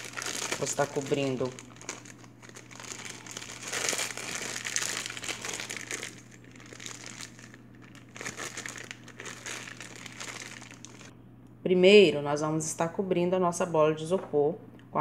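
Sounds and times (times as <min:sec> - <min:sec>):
plastic wrapping crinkling: 0:00.0 - 0:11.1.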